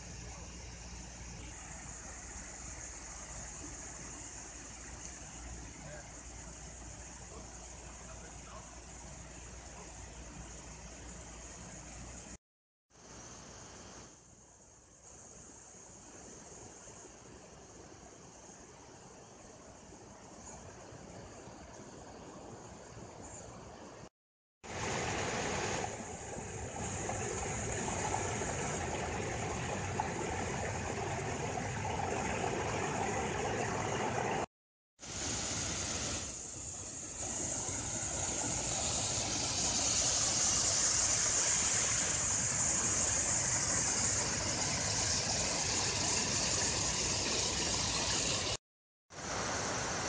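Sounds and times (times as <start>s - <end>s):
water pouring over a dam: 24.7s - 48.6s.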